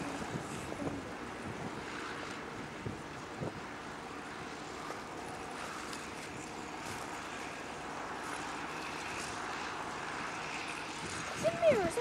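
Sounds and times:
distant diesel tractor engine drone: 0.0s - 12.0s.

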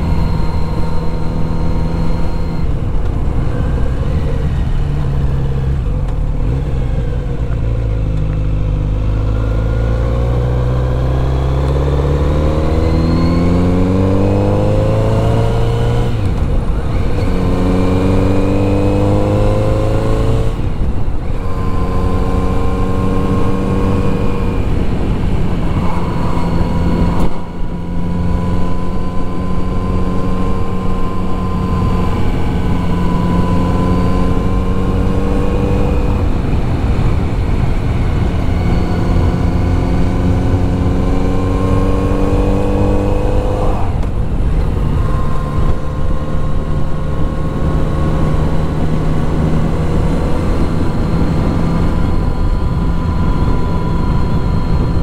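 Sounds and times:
motorcycle engine revving through gears: 0.0s - 55.0s.

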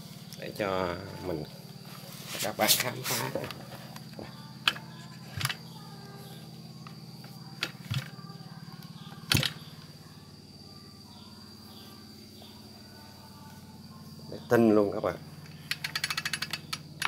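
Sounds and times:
handling knocks and clicks: 3.4s - 5.6s, 6.8s - 8.2s, 15.4s - 17.0s.

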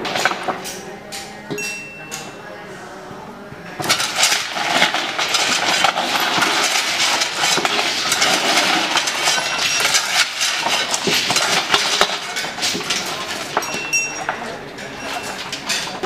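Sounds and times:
hard lumps clinking on steel: 3.8s - 16.0s
shovels scraping: 3.8s - 16.0s.

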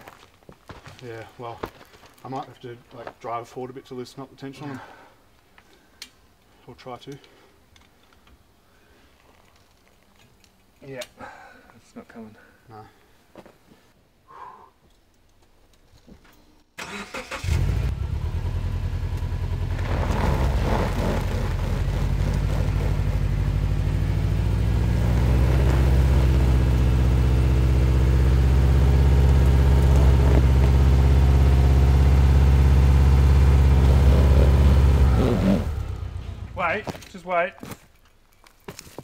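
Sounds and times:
car engine revving: 17.1s - 36.6s
tyres spinning on dirt and stones: 19.4s - 35.7s.

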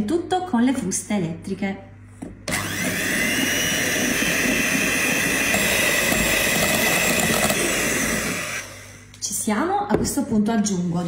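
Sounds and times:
electric hand mixer running: 2.5s - 9.1s.

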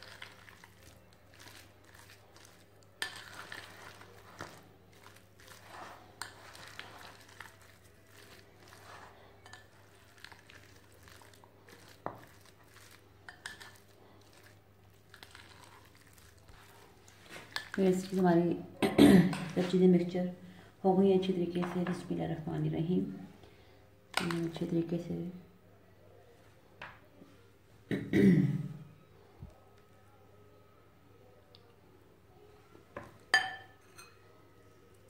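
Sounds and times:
spoon clinking and scraping bowl: 0.0s - 18.2s, 33.3s - 34.3s.

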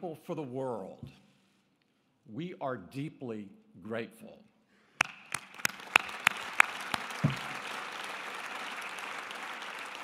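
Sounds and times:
audience applauding: 5.0s - 10.0s
loud close hand claps: 5.0s - 10.0s.

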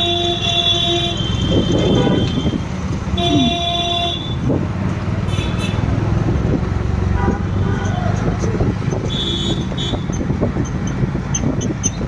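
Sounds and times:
vehicle horn blowing: 0.0s - 2.6s, 3.2s - 4.4s, 5.3s - 5.8s, 9.1s - 10.1s
street traffic rumble: 0.0s - 12.0s.

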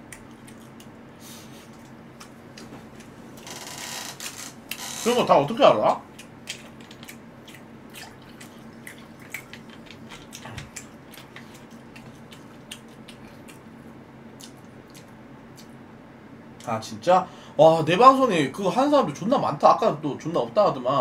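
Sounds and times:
chewing clicks and wet smacks: 0.0s - 1.0s, 1.7s - 3.1s, 5.9s - 15.8s
steady low hum: 0.0s - 21.0s.

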